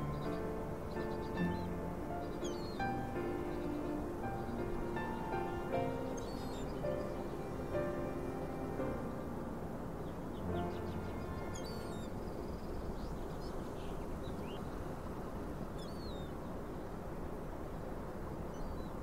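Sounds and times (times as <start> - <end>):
small birds chirping: 0.0 - 9.4, 10.0 - 14.9, 15.6 - 16.6, 18.5 - 19.0
musical chord: 0.0 - 12.5
low ambient rumble: 0.0 - 17.5.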